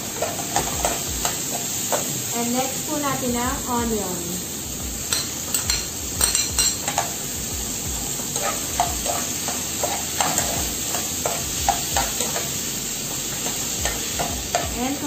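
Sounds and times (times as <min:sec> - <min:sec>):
vegetables sizzling in oil: 0:00.0 - 0:15.0
spoon stirring and scraping: 0:08.4 - 0:12.5.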